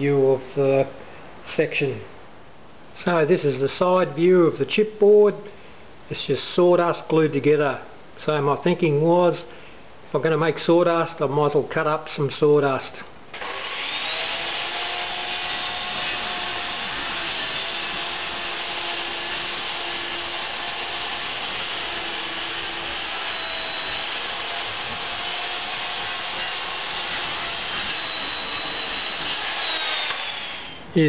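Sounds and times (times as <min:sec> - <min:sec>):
circular saw cutting board: 0:13.4 - 0:30.8.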